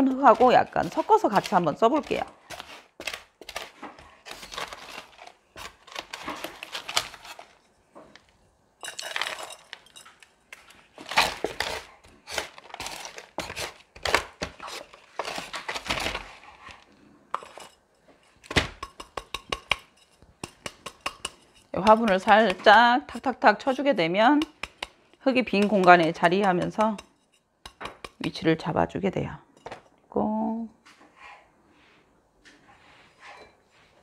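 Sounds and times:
scoop scraping potting soil: 0.0s - 7.6s.

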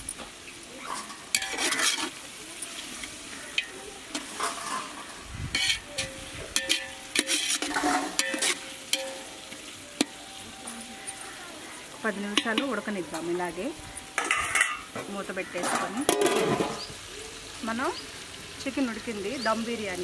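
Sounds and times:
curry sizzling: 0.0s - 20.0s
metal spatula scraping a pot: 0.8s - 13.2s, 14.0s - 16.8s.

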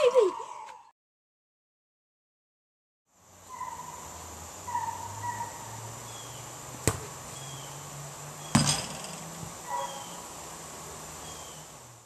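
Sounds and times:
birds chirping: 0.0s - 0.9s, 3.4s - 11.9s
basketball hitting hoop: 6.8s - 7.1s, 8.5s - 9.6s
sharp knock: 8.5s - 9.3s.

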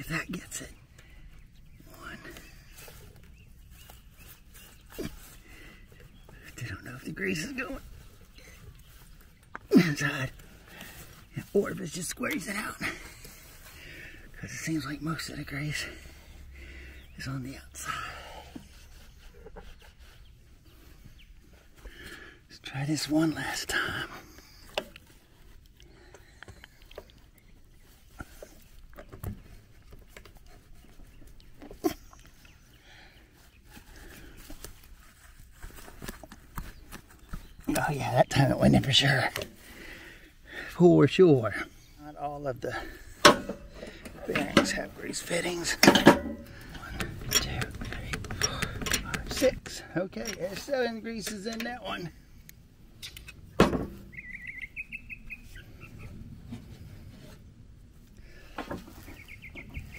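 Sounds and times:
bird chirping: 0.0s - 35.4s, 50.2s - 56.3s, 59.0s - 59.9s.

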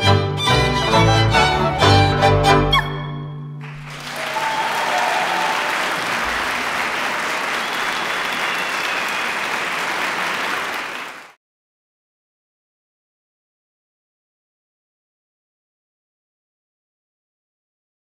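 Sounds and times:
audience applauding: 3.6s - 11.4s.

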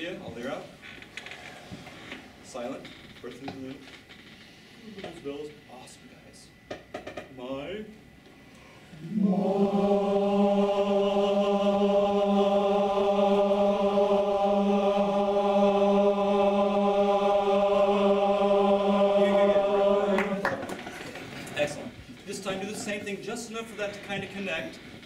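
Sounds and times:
chorus singing a held note: 8.8s - 20.8s.

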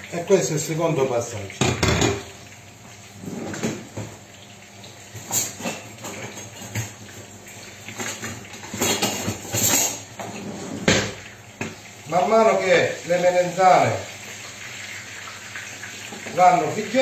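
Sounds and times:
metal cutlery clinking in basket: 8.0s - 10.0s.

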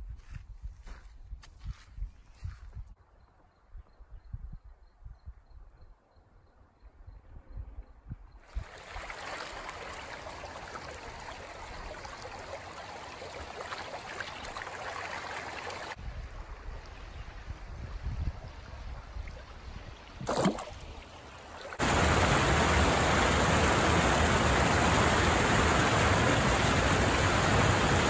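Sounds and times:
creek water running: 8.5s - 16.0s, 18.6s - 28.0s.

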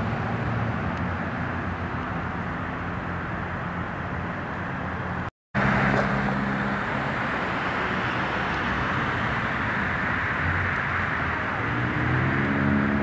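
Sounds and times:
low engine hum of traffic: 0.0s - 13.0s.

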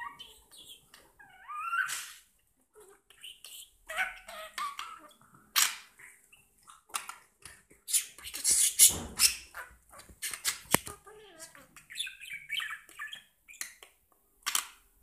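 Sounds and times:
budgerigar chattering and warbling: 7.9s - 13.6s.

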